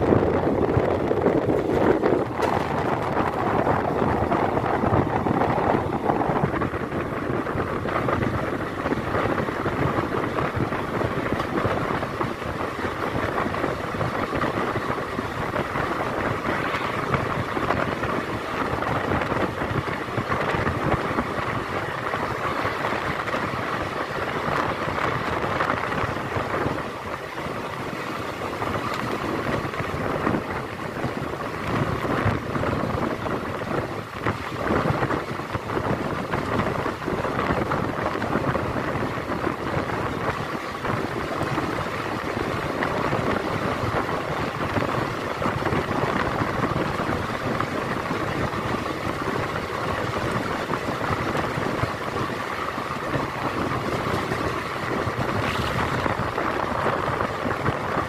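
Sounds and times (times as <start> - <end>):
train wheels rumbling on rails: 0.0 - 58.0.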